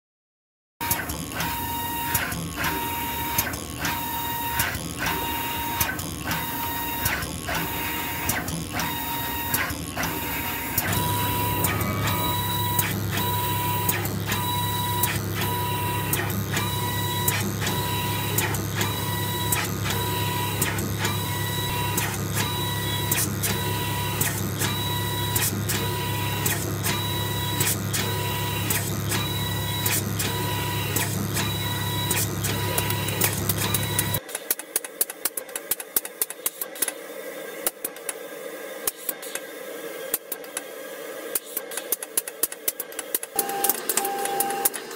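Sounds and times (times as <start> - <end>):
steady low hum: 10.3 - 14.4.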